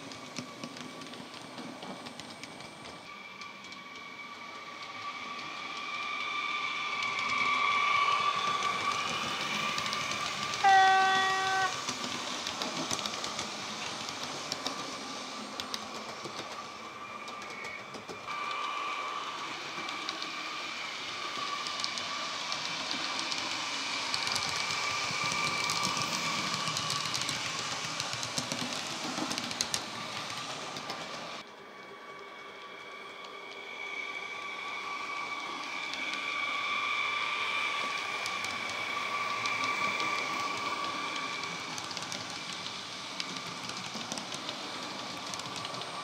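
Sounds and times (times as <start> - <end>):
model train clatter on track: 0.0 - 33.7, 35.4 - 46.0
electric train whine: 0.0 - 46.0
train horn blast: 10.6 - 11.8.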